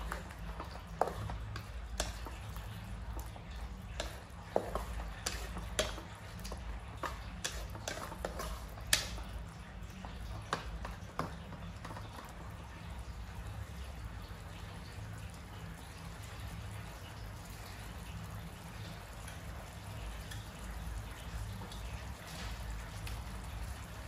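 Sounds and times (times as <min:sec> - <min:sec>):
wooden spatula scraping metal wok: 0:04.0 - 0:09.2.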